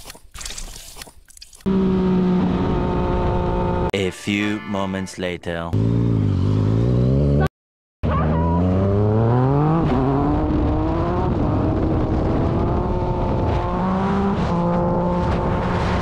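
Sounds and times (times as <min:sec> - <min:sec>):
motorcycle engine accelerating: 0:01.6 - 0:03.9, 0:05.7 - 0:16.0.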